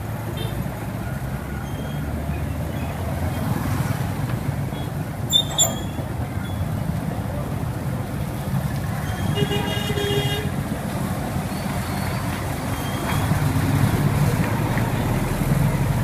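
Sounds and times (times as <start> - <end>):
street traffic: 0.0 - 16.0
vehicle horn: 9.1 - 10.6.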